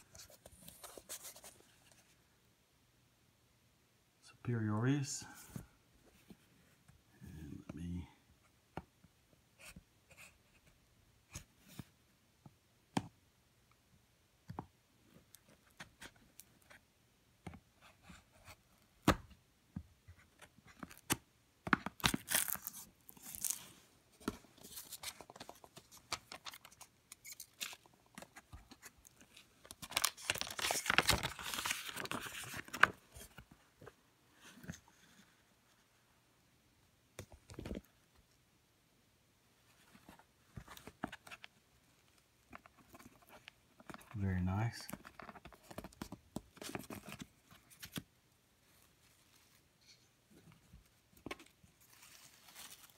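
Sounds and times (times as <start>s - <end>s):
paper tearing and rustling: 22.0s - 23.7s.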